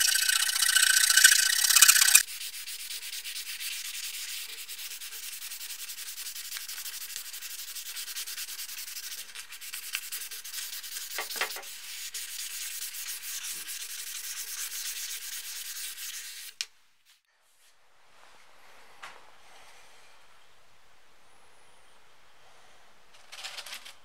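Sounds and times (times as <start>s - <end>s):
sandpaper rubbing on wood: 0.0s - 16.5s.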